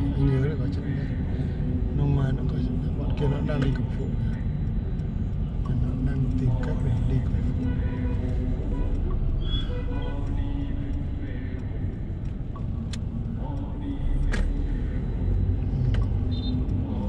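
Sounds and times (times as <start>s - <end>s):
car road and engine rumble: 0.0s - 17.0s.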